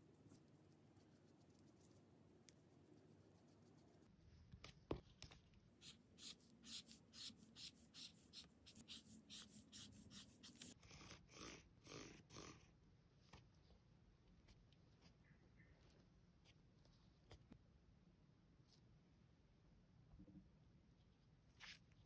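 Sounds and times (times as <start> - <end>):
marker scratching on paper: 5.8 - 12.7
pen drawn along ruler: 5.8 - 12.8.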